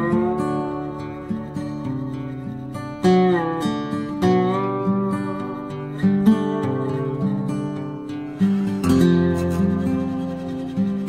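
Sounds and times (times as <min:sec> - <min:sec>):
acoustic guitar chords: 0:00.0 - 0:11.0.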